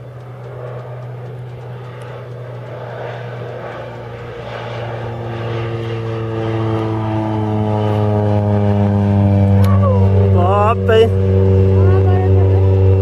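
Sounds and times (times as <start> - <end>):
stack of steady tones: 0.0 - 9.2
propeller plane engine drone: 0.0 - 13.0.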